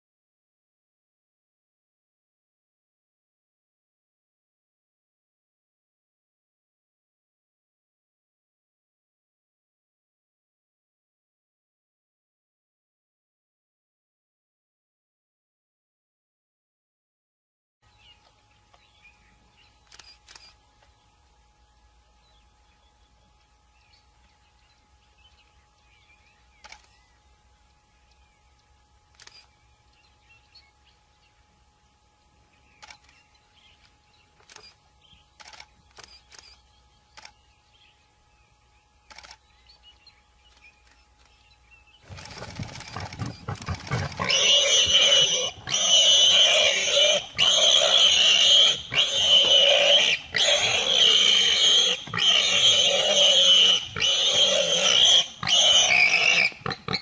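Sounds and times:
harsh wild animal calls: 42.1s - 57.0s.

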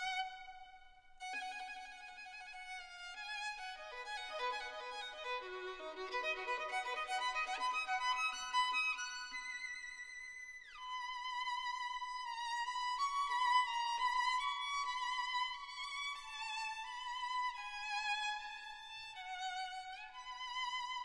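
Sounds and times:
solo violin slow melody: 0.0s - 21.0s.

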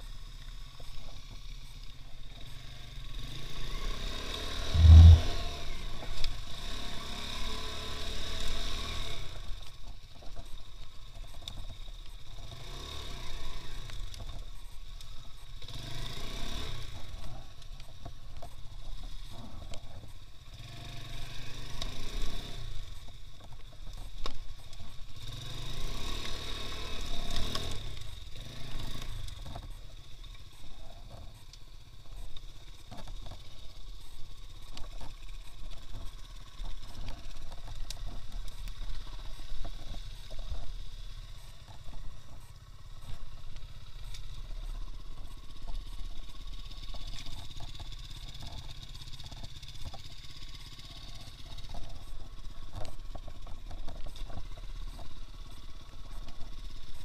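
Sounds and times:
motorcycle engine revving: 2.4s - 9.6s, 12.4s - 14.2s, 15.6s - 17.2s, 25.2s - 30.3s
loud low thump: 4.8s - 5.4s.

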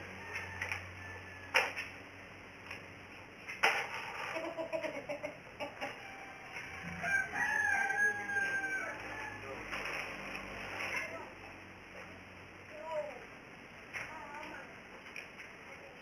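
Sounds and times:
rooster crowing: 0.0s - 1.8s, 6.0s - 9.6s
chickens clucking: 4.1s - 7.1s.

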